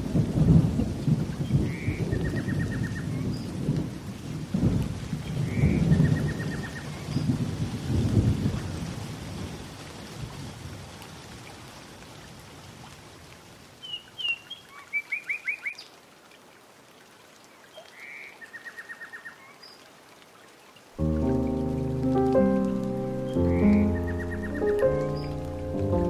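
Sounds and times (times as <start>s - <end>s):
faint steady hiss: 19.6s - 26.0s
songbird singing: 21.2s - 26.0s.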